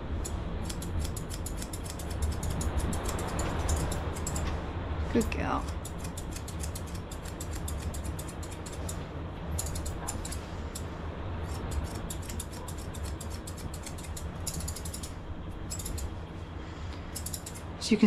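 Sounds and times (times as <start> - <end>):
steady low rumble: 0.0 - 18.0
scissors snipping hair: 0.2 - 4.5, 5.6 - 9.0, 9.6 - 10.8, 11.4 - 15.1, 15.7 - 16.1, 17.1 - 17.7.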